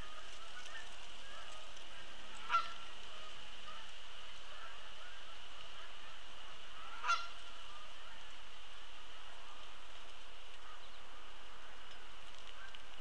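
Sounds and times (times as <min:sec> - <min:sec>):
geese honking in flight: 0:00.0 - 0:08.4.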